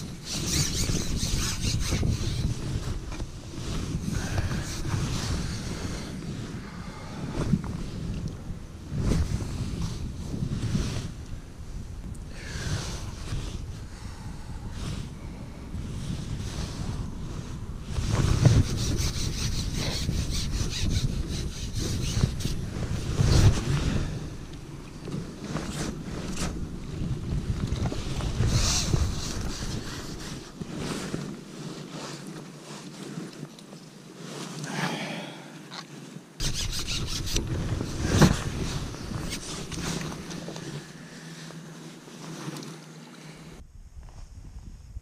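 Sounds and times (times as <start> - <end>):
fishing pole rubbing scratchily: 0.0 - 6.1, 16.0 - 23.7, 27.9 - 33.2, 36.4 - 41.0
wind buffeting microphone: 0.0 - 31.6, 36.4 - 41.2, 43.5 - 45.0
fishing pole rustling and knocking: 35.7 - 40.8.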